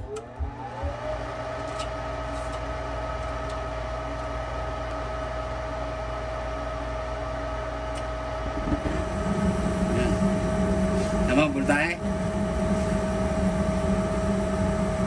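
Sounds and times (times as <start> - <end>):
blower motor humming: 3.1 - 15.0.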